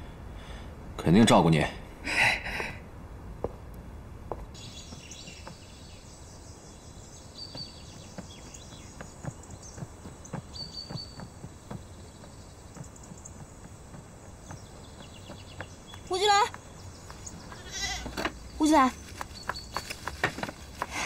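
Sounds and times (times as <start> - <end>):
bird chirps: 4.6 - 21.0.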